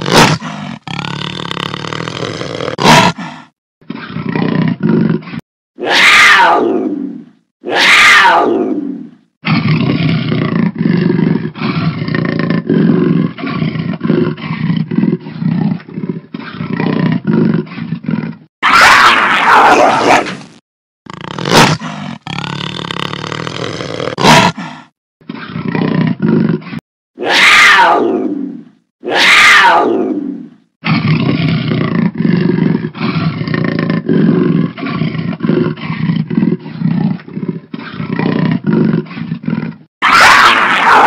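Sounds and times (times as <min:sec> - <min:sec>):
jaguar roaring: 0:21.1 - 0:41.0.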